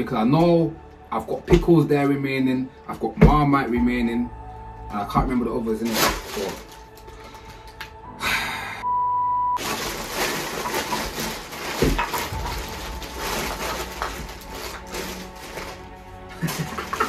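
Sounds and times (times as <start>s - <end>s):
crinkly rustling: 5.6s - 7.7s, 9.6s - 17.0s
censor bleep: 8.8s - 9.6s.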